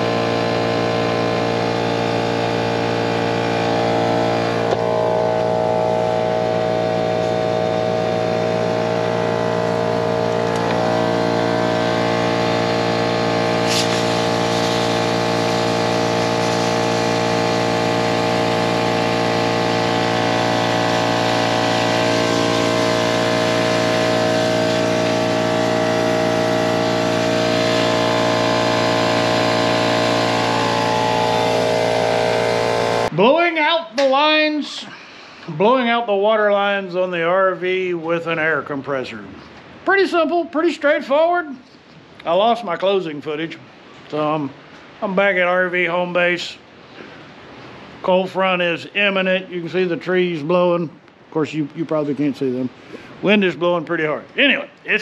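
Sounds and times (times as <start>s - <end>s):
air compressor running: 0.0s - 35.5s, 46.8s - 48.0s.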